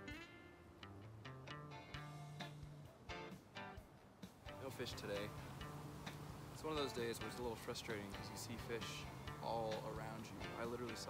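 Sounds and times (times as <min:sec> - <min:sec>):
plucked guitar notes: 0:00.0 - 0:03.8, 0:04.5 - 0:11.0.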